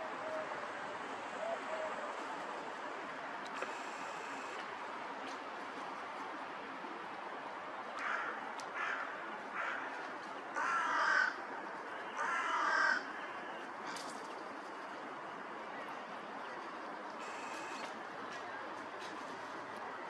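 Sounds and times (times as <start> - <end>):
steady background hiss: 0.0 - 20.0
crow cawing: 8.0 - 10.0, 10.6 - 11.4, 12.2 - 13.1.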